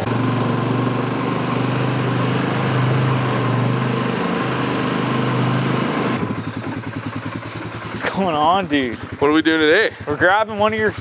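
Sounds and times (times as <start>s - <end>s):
quad engine running: 0.0s - 11.0s.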